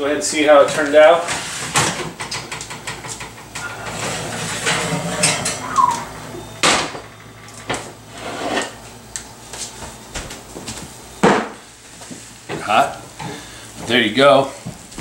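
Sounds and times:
oven rack clanking: 0.8 - 8.8.

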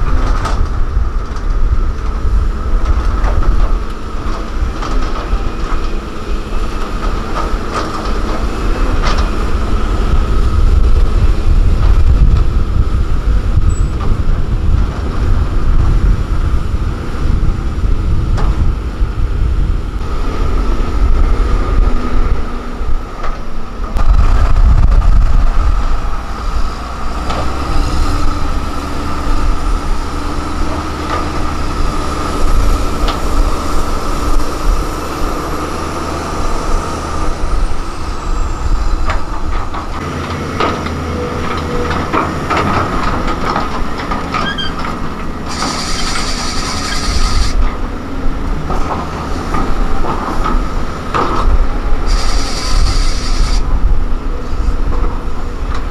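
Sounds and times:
heavy machinery engine rumble: 0.0 - 55.9
high-pitched machinery whine: 45.4 - 47.6, 52.1 - 53.6.

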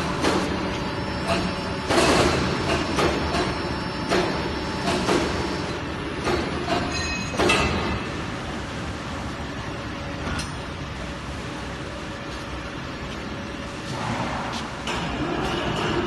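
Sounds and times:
machine clanks and knocks: 0.0 - 8.2, 13.9 - 16.0
machine humming: 0.0 - 16.0.

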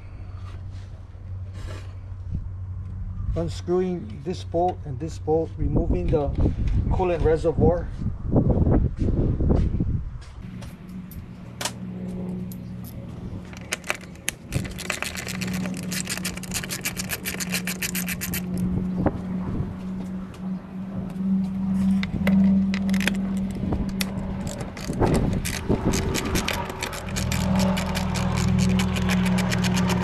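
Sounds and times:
low hum: 7.9 - 30.0
tools clinking: 12.4 - 18.7, 21.9 - 30.0
metal and plastic scraping: 13.4 - 18.7, 21.8 - 30.0
ratchet clicking: 13.5 - 18.6, 22.2 - 30.0.

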